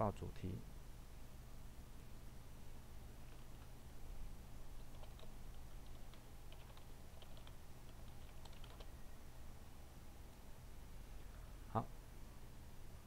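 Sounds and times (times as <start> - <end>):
keyboard typing: 3.2 - 3.7, 4.8 - 8.9.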